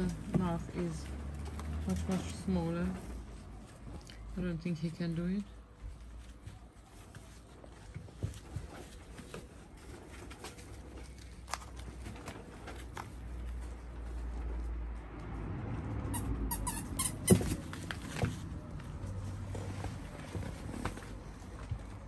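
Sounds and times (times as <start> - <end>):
puppies scuffling on turf: 0.0 - 15.1.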